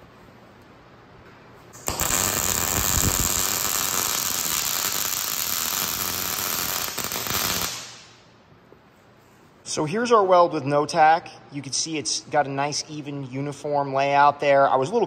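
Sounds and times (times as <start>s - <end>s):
electric arc welding: 1.8s - 8.2s.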